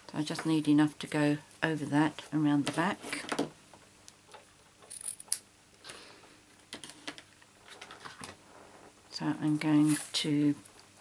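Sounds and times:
ribbon and card rustling: 9.4 - 10.5.

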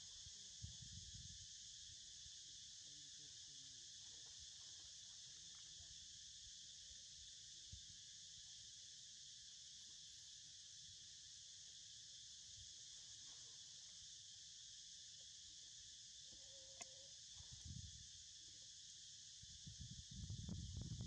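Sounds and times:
insects droning: 0.0 - 21.0
faint brief tone: 16.3 - 17.1.

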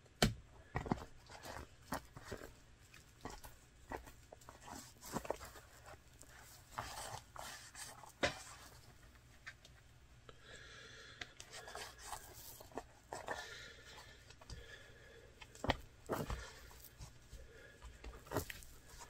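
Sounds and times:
hands rubbing leather: 11.5 - 13.4, 15.5 - 19.0.

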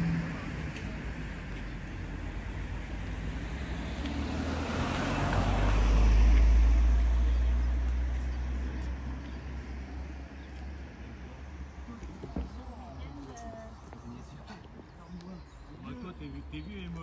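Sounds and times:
vehicle passing by: 0.0 - 10.9.

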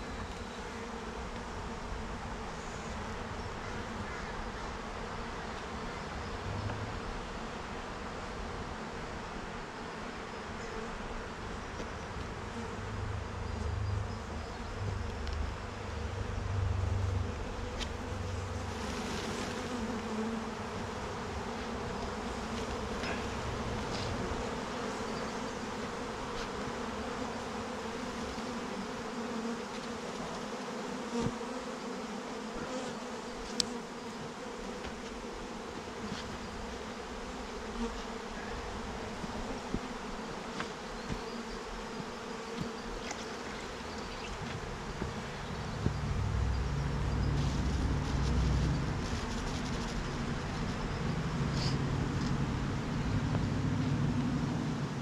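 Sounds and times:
bee swarm buzzing: 0.0 - 55.0
low rumble: 45.4 - 49.5.

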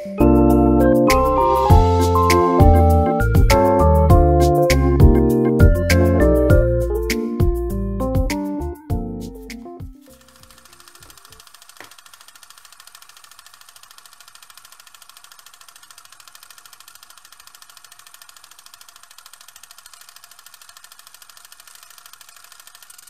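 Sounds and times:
rapid mechanical rattle: 10.0 - 23.0.

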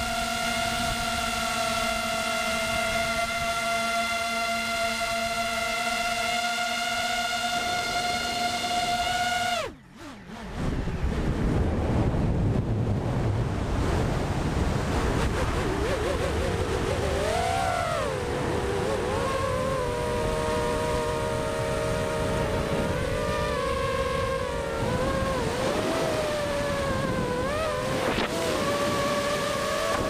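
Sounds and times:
drone motors whining: 0.0 - 13.0, 14.3 - 30.0
wind rushing over camera: 7.6 - 30.0.

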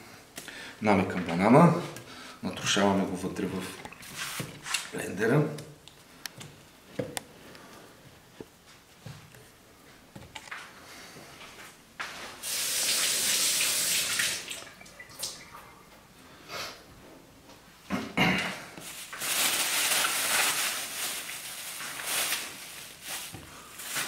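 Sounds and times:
water running from a tap: 12.4 - 15.6.

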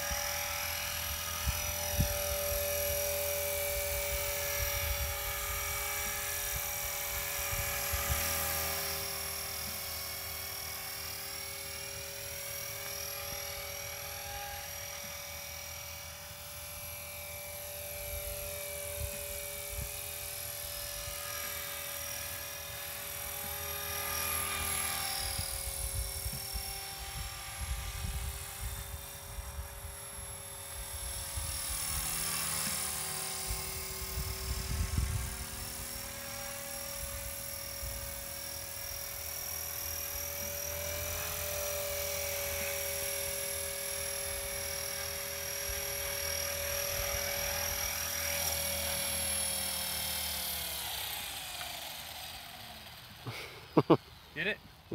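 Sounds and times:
rc helicopter motor whine: 0.0 - 54.9
wind rumble on microphone: 25.6 - 29.8, 33.4 - 35.7.

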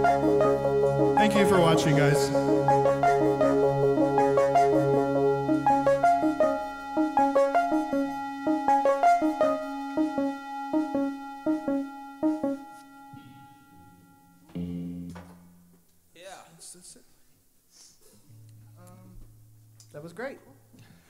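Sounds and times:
keyboard playing short notes: 0.0 - 15.2
held low keyboard note: 0.0 - 15.3.

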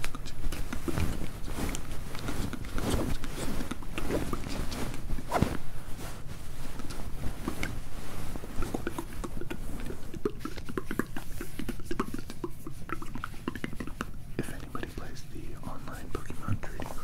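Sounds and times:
scratchy crackly noises: 0.0 - 17.0
close whispering: 8.6 - 17.0.

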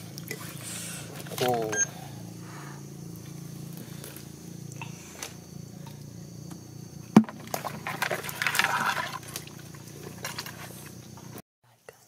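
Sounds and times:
low steady hum: 0.0 - 12.0
knock on plastic bucket: 7.1 - 8.1
bucket scraping and rustling: 7.1 - 11.4.

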